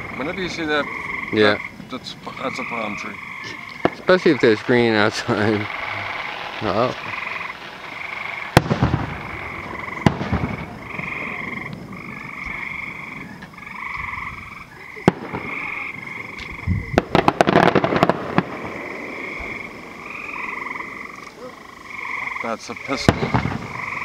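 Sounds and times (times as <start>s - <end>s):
distant fireworks bangs: 0.0s - 24.0s
fireworks crackling: 0.0s - 24.0s
frogs calling: 0.0s - 24.0s.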